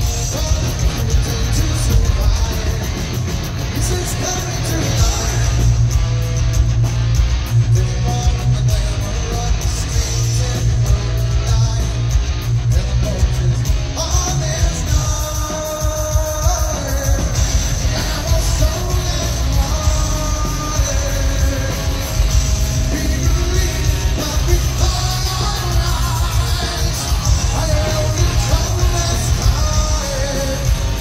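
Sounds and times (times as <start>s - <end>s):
heavy metal band playing live: 0.0s - 31.0s
person singing: 12.7s - 31.0s.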